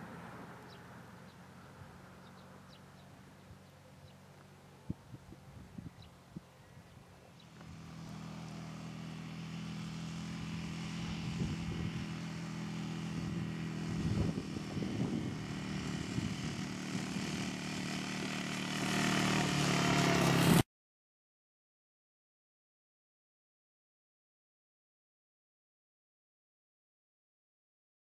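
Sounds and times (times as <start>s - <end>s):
quad bike engine running: 0.0s - 20.6s.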